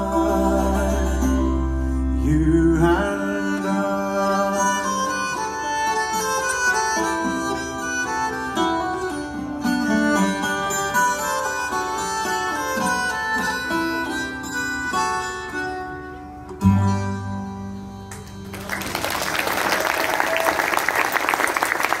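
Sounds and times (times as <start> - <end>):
audience applause: 18.1 - 22.0.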